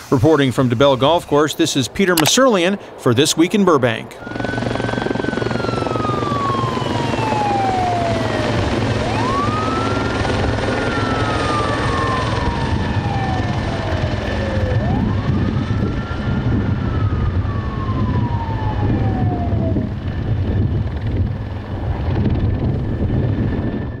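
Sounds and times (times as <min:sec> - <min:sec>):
helicopter rotor drone: 0:00.0 - 0:24.0
siren wailing: 0:04.2 - 0:24.0.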